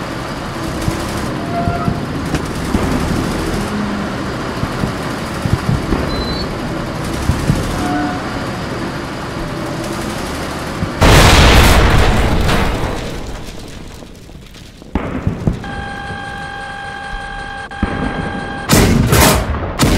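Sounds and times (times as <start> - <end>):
tank-like rumble: 0.0 - 17.3
loud explosion: 11.0 - 15.7.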